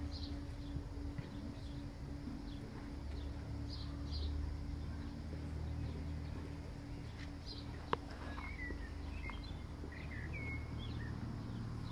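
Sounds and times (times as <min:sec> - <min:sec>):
birds chirping: 0:00.0 - 0:11.9
faint low hum: 0:00.0 - 0:11.9.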